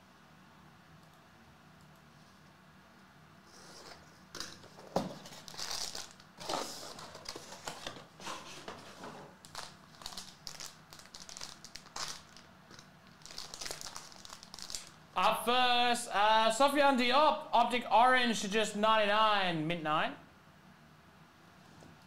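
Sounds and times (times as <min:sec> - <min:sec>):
plastic pouch rustling and crinkling: 0:05.0 - 0:15.0.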